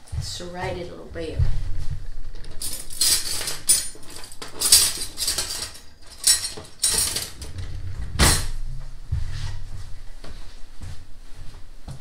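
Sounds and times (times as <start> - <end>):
knives and cutlery clattering: 2.5 - 7.4.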